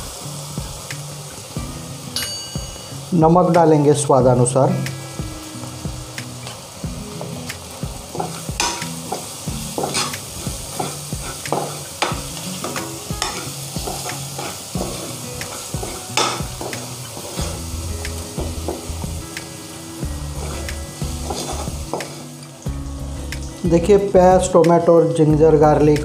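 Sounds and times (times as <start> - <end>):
food sizzling in oil: 0.0 - 25.2
spoon scraping pan: 8.1 - 17.7, 20.3 - 22.3.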